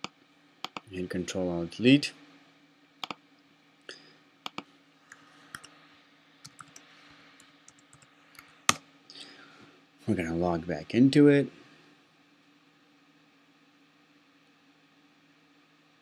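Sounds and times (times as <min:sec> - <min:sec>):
faint steady hum: 0:00.0 - 0:16.0
keyboard keys clicking: 0:06.5 - 0:06.8.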